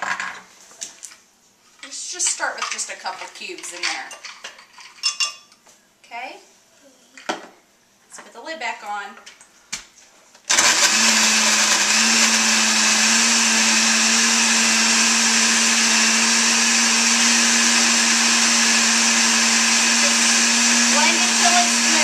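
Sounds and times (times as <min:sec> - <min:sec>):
blender running: 0:10.5 - 0:22.0.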